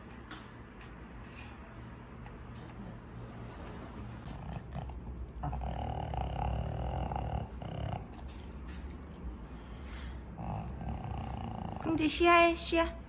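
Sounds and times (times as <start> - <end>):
dog breathing and snuffling: 3.2 - 12.2.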